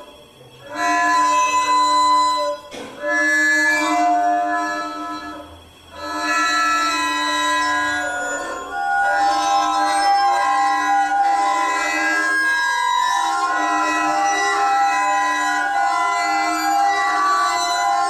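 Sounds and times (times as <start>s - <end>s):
hand-stroked long strings droning: 0.0s - 18.0s.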